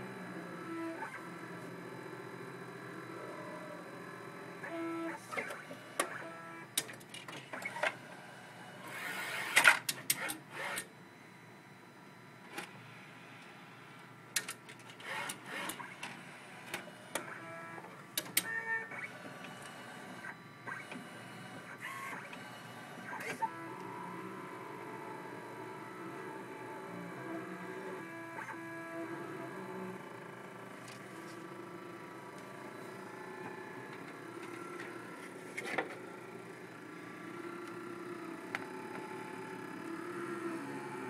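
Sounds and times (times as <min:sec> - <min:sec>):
machine clicks and clunks: 0:14.3 - 0:17.3, 0:18.1 - 0:18.7.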